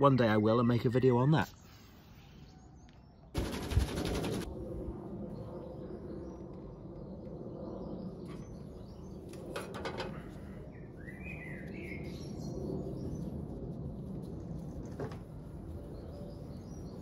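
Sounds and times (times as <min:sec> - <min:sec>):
bird chirping: 0:10.7 - 0:13.4, 0:15.7 - 0:17.0.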